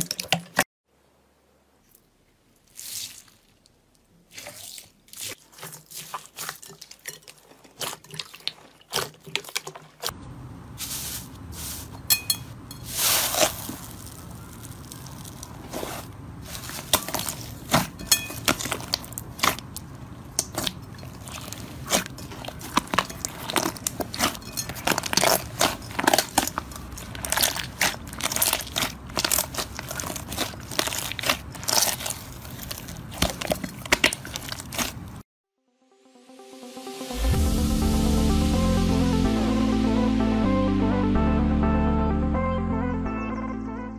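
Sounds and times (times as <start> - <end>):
slime squishing and popping: 16.4 - 35.2.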